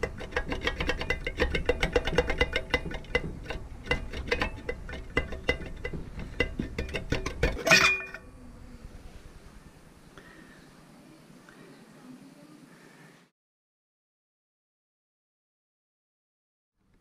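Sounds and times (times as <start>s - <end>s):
loud metallic clank: 0.0s - 8.2s
metal baffle rattling and clinking: 0.0s - 8.2s
faint metal scraping: 0.0s - 10.8s.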